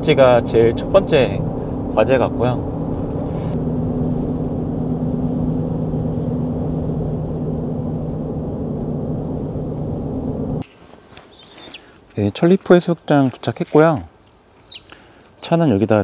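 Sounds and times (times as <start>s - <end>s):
road and engine noise in truck cabin: 0.0s - 10.7s.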